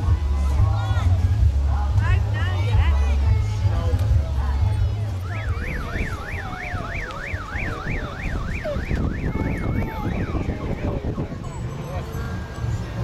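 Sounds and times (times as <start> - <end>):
electronic siren yelping: 5.2 - 11.4.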